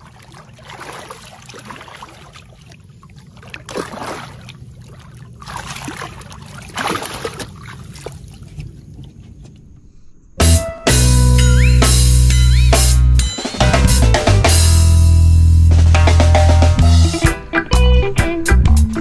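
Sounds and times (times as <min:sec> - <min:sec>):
fish thrashing and splashing: 0:00.0 - 0:09.3.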